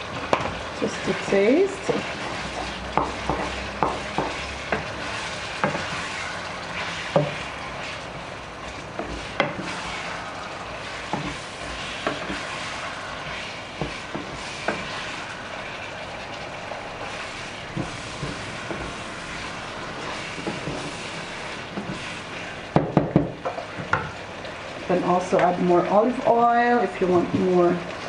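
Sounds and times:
seafood sizzling in oil: 0.0s - 28.0s
utensil scraping a pan: 0.4s - 8.0s, 17.0s - 22.7s.

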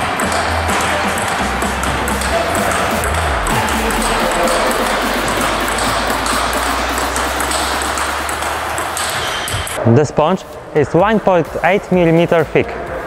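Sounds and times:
table tennis ball clicking: 5.6s - 9.8s.

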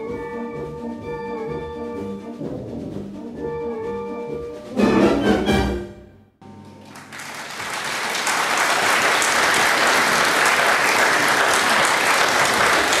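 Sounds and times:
audience applause: 6.8s - 13.0s.

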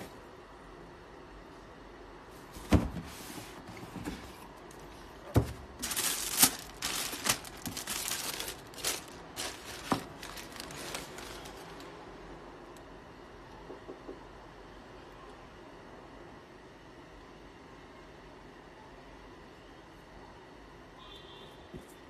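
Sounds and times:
tissue paper rustling: 5.5s - 12.0s.

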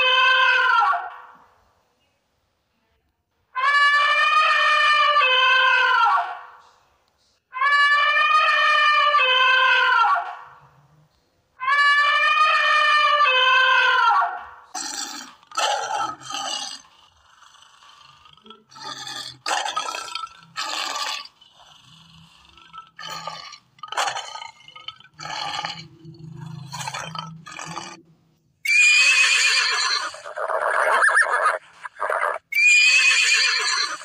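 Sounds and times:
animal call sound effects: 28.7s - 33.0s
loud horse whinny: 28.7s - 34.0s.

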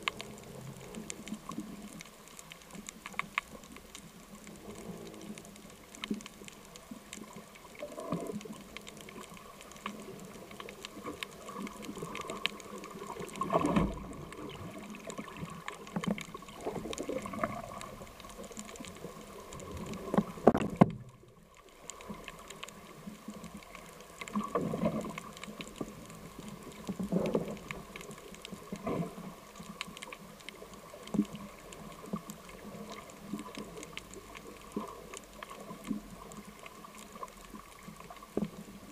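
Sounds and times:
underwater crackle of small clicks: 0.0s - 38.9s.

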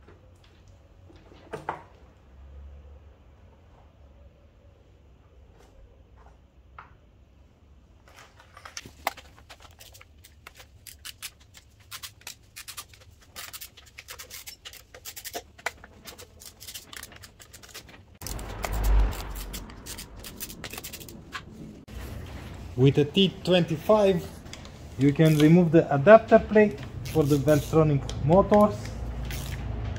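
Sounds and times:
ratchet wrench clicking: 11.9s - 21.2s, 25.0s - 25.6s, 27.0s - 27.8s, 28.5s - 29.7s.

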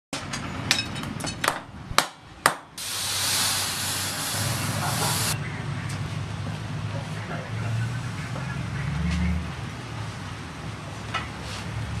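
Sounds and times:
hiss of steam from quenching: 2.8s - 5.4s.

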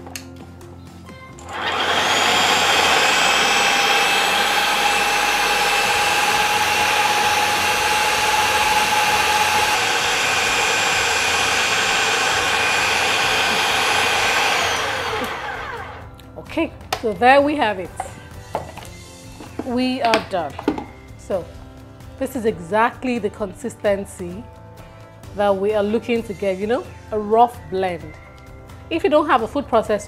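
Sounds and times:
food processor motor whining: 1.4s - 16.1s
blade chopping vegetables: 1.5s - 15.8s.

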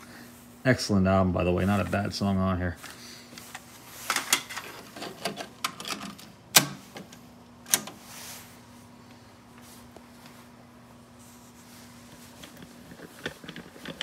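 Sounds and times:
cassette deck mechanical clunks: 4.1s - 8.0s.

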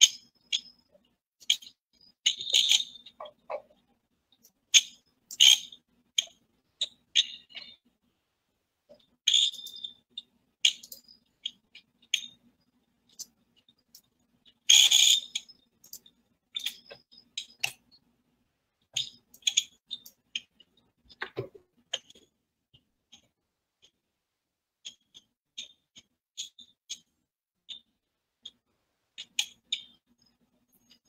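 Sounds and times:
faint steady hum: 0.0s - 31.0s.

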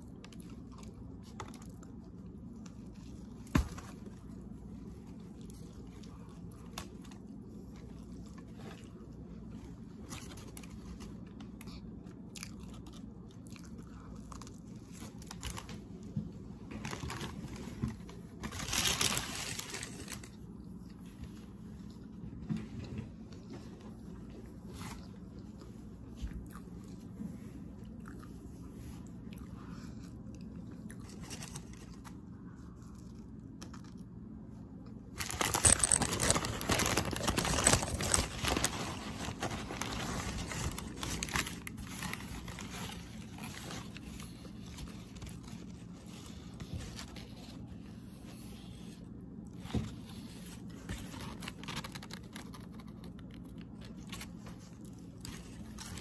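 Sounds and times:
steady low hum: 0.0s - 56.0s
paper crinkling and tearing: 2.6s - 11.7s, 14.3s - 15.9s, 16.7s - 20.6s, 31.0s - 32.3s, 35.1s - 48.8s, 49.6s - 56.0s.

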